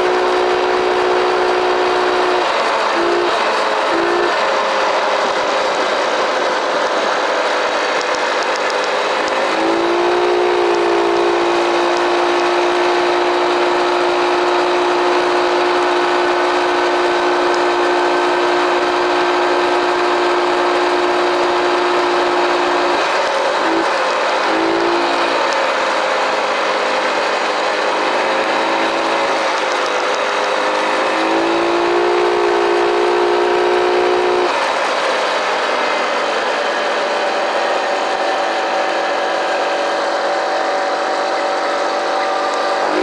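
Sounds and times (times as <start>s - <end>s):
small engine running: 0.0s - 43.0s.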